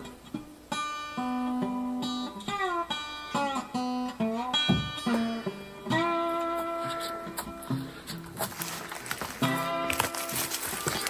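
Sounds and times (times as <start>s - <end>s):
plucked acoustic guitar: 0.0s - 11.0s.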